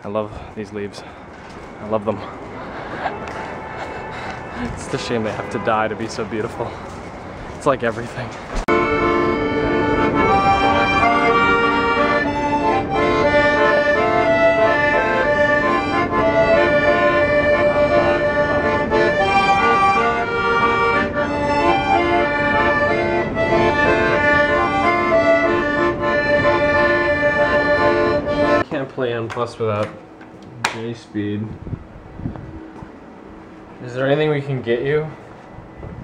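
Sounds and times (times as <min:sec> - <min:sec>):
accordion playing: 0:01.5 - 0:07.4, 0:08.6 - 0:28.6.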